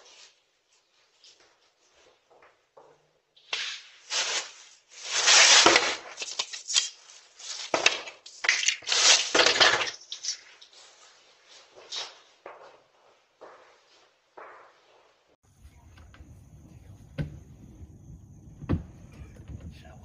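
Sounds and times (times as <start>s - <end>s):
tinsel garland crackling: 3.8s - 12.2s.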